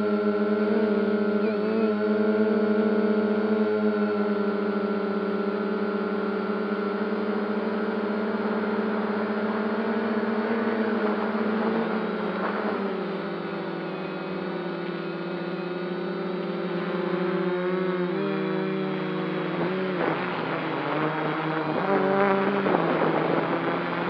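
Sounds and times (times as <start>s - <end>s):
drone propellers whirring: 0.0s - 24.0s.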